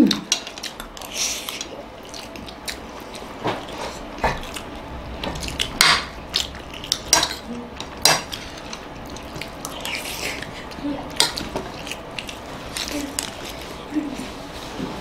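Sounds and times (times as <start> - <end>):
cutlery clinking and scraping plates: 5.3 - 10.4.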